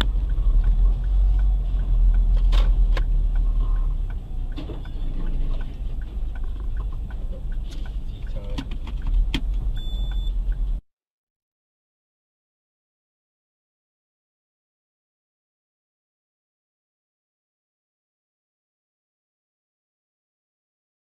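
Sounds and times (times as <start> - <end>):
light ticks and taps: 0.0 - 10.6
car engine and road noise: 0.0 - 10.8
faint short beep: 4.7 - 5.3, 9.8 - 10.4.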